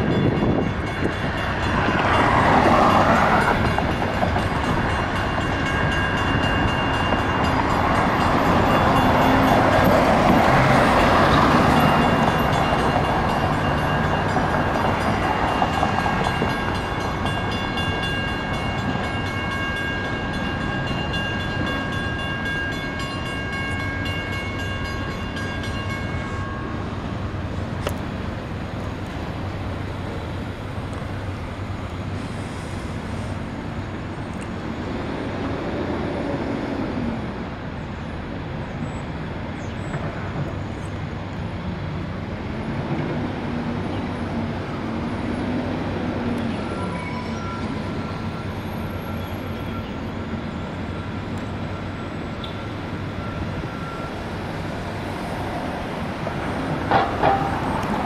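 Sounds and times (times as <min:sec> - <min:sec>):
freight train rumbling past: 0:00.0 - 0:58.0
level-crossing bell ringing: 0:11.0 - 0:27.0.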